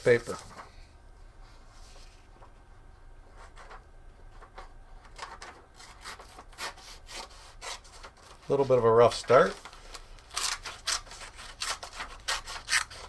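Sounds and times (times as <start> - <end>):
paper tearing: 5.8 - 8.6, 9.4 - 13.0
scissors snipping paper: 10.2 - 13.0.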